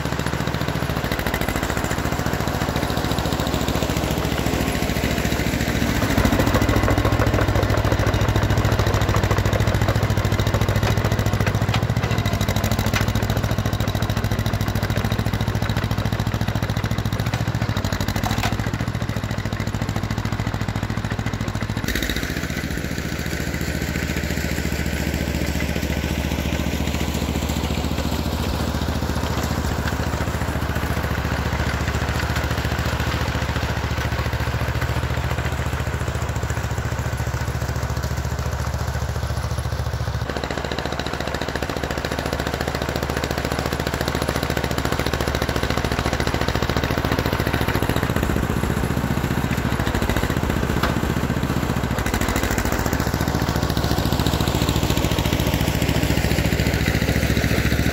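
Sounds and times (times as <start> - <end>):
crawler engine running: 0.0 - 57.9.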